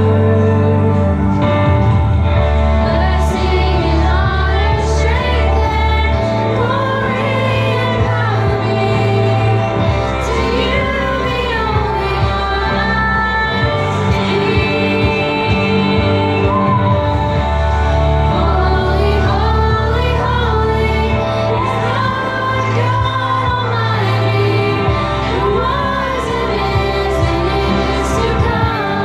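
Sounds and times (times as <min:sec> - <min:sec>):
women singing: 0:00.0 - 0:01.5, 0:02.8 - 0:29.0
instrumental music with bass: 0:00.0 - 0:29.0.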